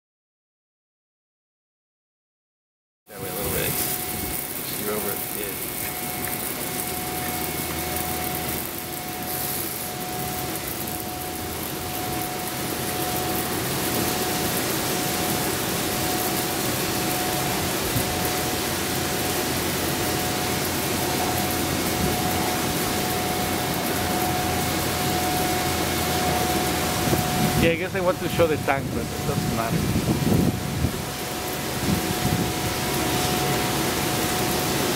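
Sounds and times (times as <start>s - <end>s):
car wash brushes spinning: 3.1s - 29.4s
steady motor whine: 3.2s - 34.9s
water spray: 3.3s - 11.0s.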